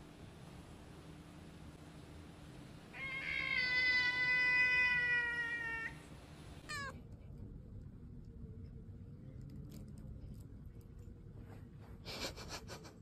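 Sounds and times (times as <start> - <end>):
cat meowing: 2.9 - 6.0, 6.6 - 7.0.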